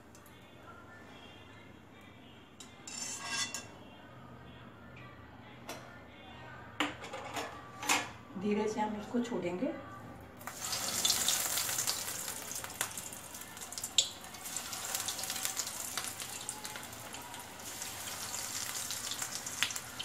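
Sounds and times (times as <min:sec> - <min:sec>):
deep-frying in hot oil: 0:10.4 - 0:20.0.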